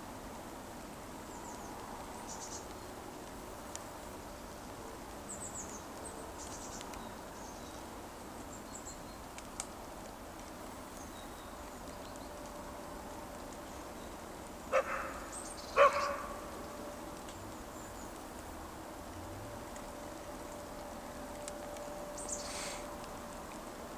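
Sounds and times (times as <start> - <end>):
dog barking: 14.7 - 15.2, 15.8 - 16.4.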